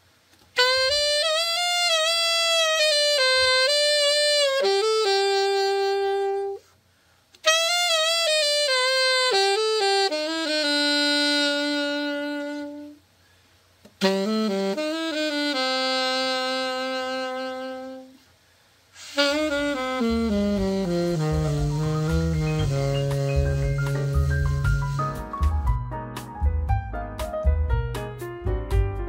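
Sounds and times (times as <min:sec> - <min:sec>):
alto saxophone playing: 0:00.5 - 0:06.8, 0:07.4 - 0:13.1, 0:13.9 - 0:18.3, 0:18.9 - 0:25.6.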